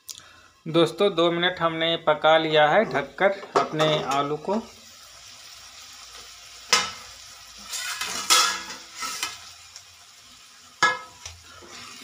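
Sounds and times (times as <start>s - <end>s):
vegetables sizzling faintly: 0.0s - 12.0s
kitchenware clinks and scrapes: 7.7s - 9.4s.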